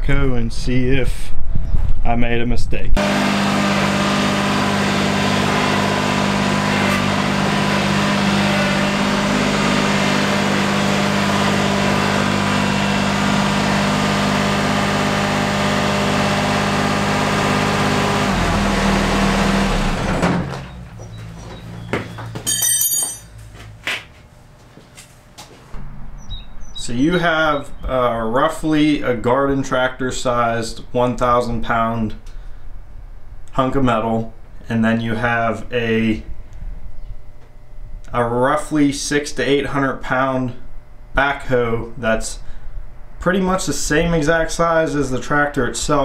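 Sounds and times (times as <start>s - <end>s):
tractor diesel engine running: 3.0s - 24.5s.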